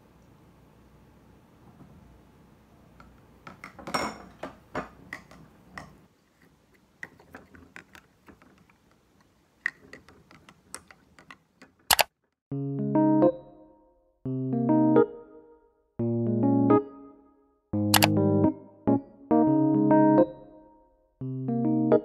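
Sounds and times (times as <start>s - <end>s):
glass bottle clinking and knocking: 3.6s - 5.9s
piano music: 12.5s - 22.0s.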